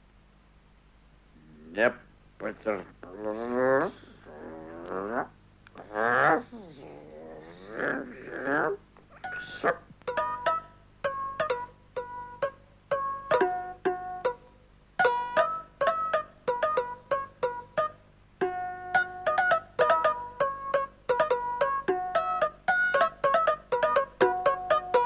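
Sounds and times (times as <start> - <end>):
wavering vocal sound: 3.0 - 9.8
plucked-string tune: 9.1 - 25.0.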